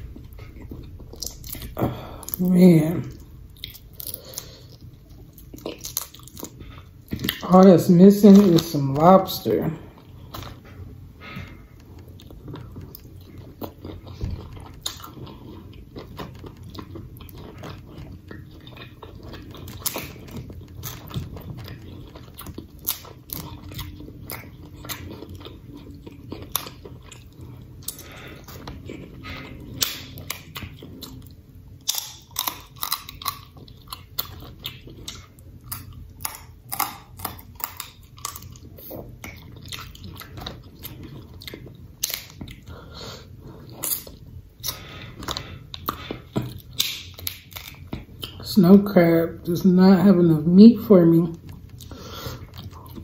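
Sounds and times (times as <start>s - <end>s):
wet chewing and lip smacking: 0.0s - 7.5s, 10.0s - 48.4s, 51.4s - 53.0s
crab legs cracking: 11.9s - 29.1s, 29.7s - 30.8s, 31.8s - 42.7s, 43.8s - 48.4s.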